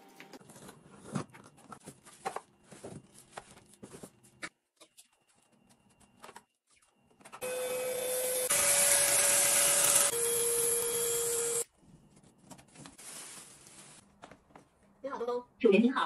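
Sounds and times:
small electric motor whining: 7.4s - 11.6s.

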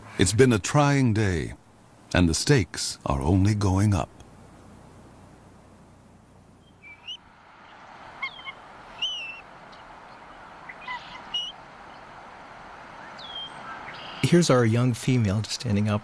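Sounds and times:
eagle chirps and whistles: 6.6s - 7.2s, 8.2s - 9.8s, 10.6s - 11.6s, 13.0s - 14.2s.

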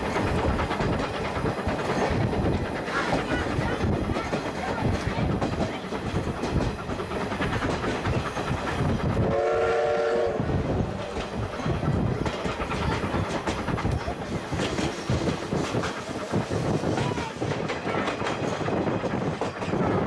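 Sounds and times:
train wheels clicking over rail joints: 0.0s - 20.0s
steam locomotive whistle: 9.2s - 10.6s.

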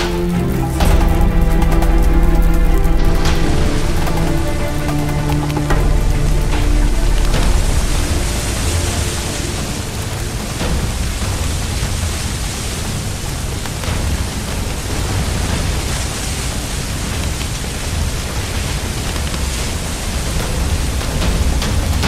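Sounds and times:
deep rumble: 0.0s - 15.6s
steady rushing noise: 0.0s - 22.0s.

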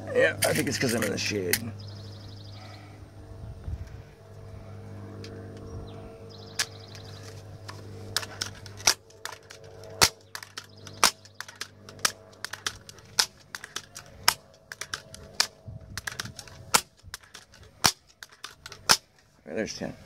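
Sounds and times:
air rifle pump lever clacking: 6.5s - 19.3s.

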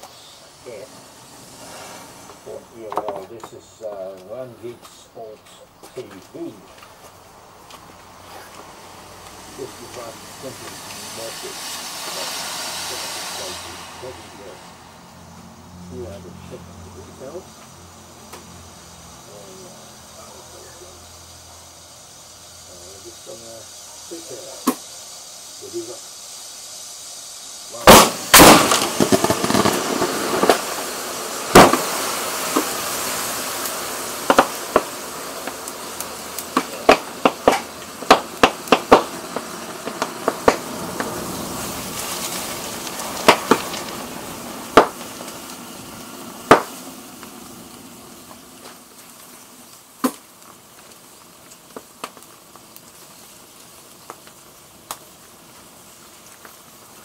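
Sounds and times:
cracks and pops from burning: 0.0s - 5.0s, 5.8s - 12.4s, 24.2s - 25.1s, 27.8s - 57.0s
hiss: 0.0s - 57.0s
television exploding with loud bang: 9.5s - 15.1s, 24.2s - 24.9s, 27.7s - 48.1s.

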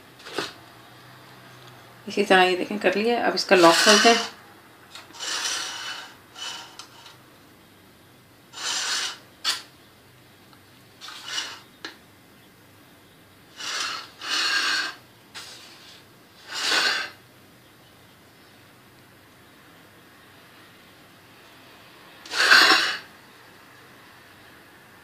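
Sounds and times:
knife scraping metal pan: 3.5s - 4.4s, 5.0s - 7.2s, 8.6s - 9.7s, 11.0s - 11.7s, 22.3s - 23.1s.

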